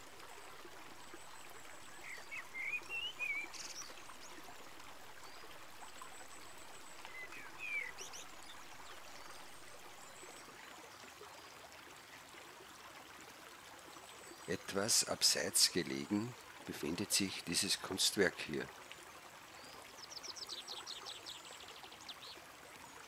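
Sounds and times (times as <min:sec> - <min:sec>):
running water trickling: 0:00.0 - 0:23.0
songbird warbling: 0:02.0 - 0:04.0, 0:07.1 - 0:08.3.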